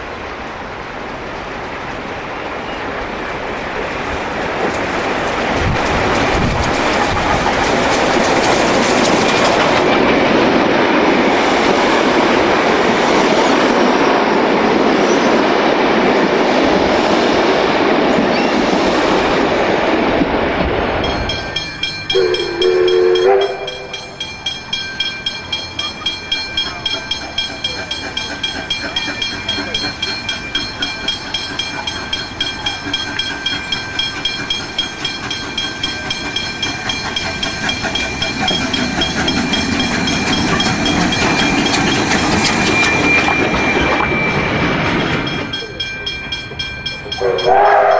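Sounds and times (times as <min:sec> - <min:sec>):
train carriages rumbling: 0:00.0 - 0:47.9
level-crossing bell ringing: 0:20.8 - 0:47.9
steam locomotive whistle: 0:22.1 - 0:24.0, 0:47.1 - 0:47.9.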